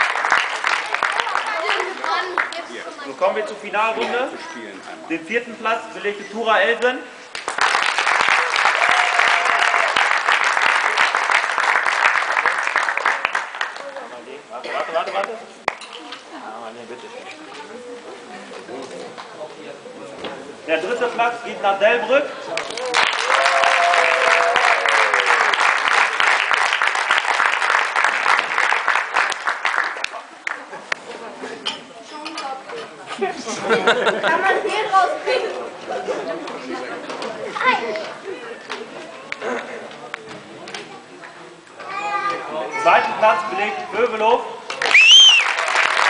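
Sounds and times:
crowd applauding: 0:00.0 - 0:02.8, 0:07.3 - 0:14.2, 0:22.4 - 0:30.9, 0:44.7 - 0:46.0.

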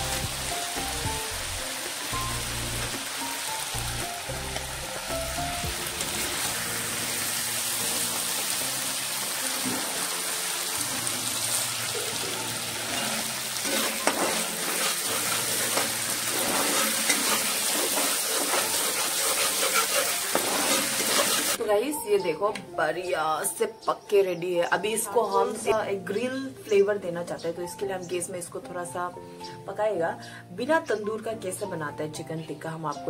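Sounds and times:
chicken sizzling in an iron pan: 0:00.0 - 0:21.6
soft background music: 0:00.0 - 0:33.0
steel spatula scraping pan: 0:12.8 - 0:21.6.

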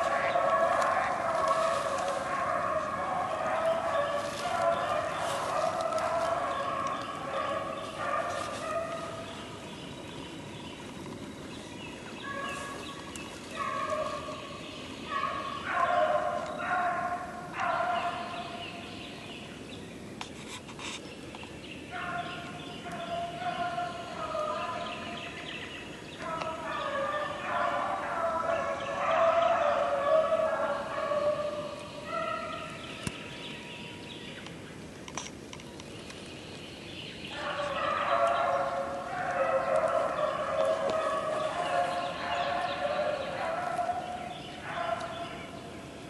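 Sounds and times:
hounds baying: 0:00.0 - 0:09.6, 0:12.2 - 0:18.6, 0:21.9 - 0:25.4, 0:26.2 - 0:32.9, 0:37.3 - 0:45.6.

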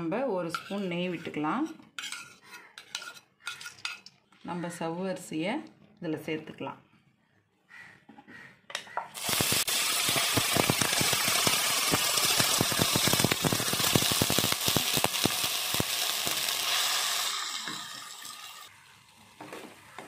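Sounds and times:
sizzling in hot fat: 0:09.2 - 0:19.4.

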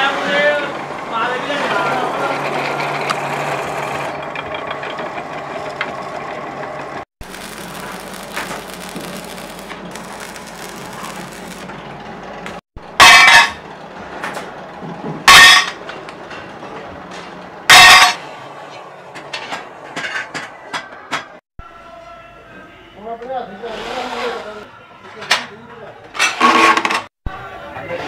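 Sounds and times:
drill press humming: 0:01.8 - 0:13.0
steel pieces clanging: 0:07.2 - 0:11.7, 0:13.0 - 0:13.6, 0:15.3 - 0:15.8, 0:17.7 - 0:18.2
arc welder crackling: 0:07.2 - 0:12.6.

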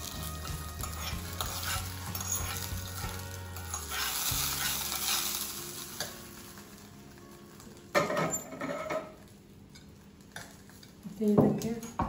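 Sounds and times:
hot oil sizzling: 0:00.0 - 0:11.8
spoon scraping steel pot: 0:00.8 - 0:02.8.

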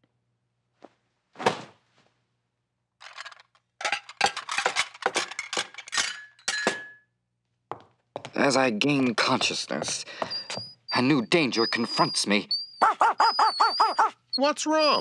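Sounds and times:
china clattering and clinking: 0:03.0 - 0:07.0.

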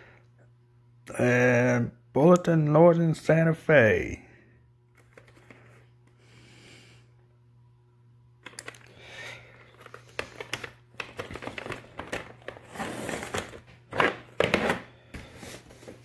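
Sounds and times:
plastic cases clicking and rattling: 0:09.6 - 0:14.8.

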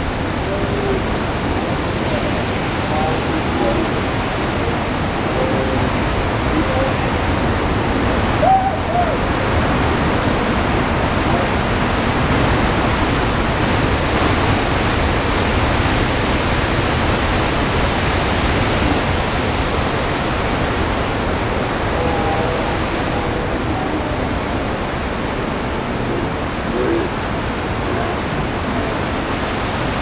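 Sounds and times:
heavy surf roaring: 0:00.0 - 0:30.0
wind noise: 0:00.0 - 0:30.0
person whooping: 0:08.4 - 0:09.3.

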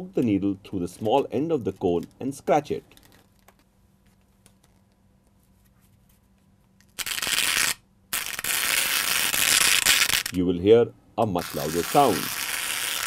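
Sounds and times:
needle scratching rough surface: 0:11.4 - 0:13.0.

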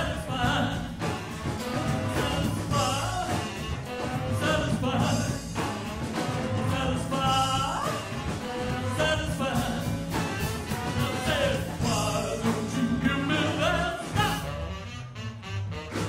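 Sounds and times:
man singing: 0:00.0 - 0:14.7
double bass: 0:00.0 - 0:16.0
drums: 0:00.0 - 0:16.0.

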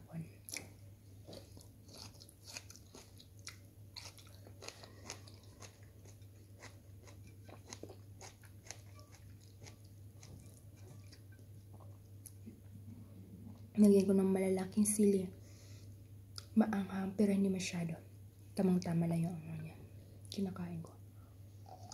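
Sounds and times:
low steady hum: 0:00.0 - 0:21.9
person chewing food: 0:00.4 - 0:12.5, 0:21.6 - 0:21.9.

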